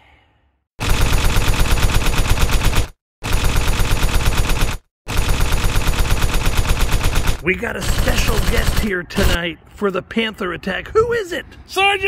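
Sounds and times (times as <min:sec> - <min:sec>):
machine-gun fire: 0:00.8 - 0:09.4.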